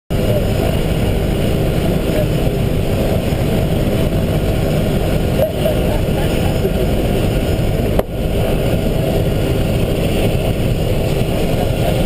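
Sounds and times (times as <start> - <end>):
propeller aircraft engine running: 0.1 - 12.0.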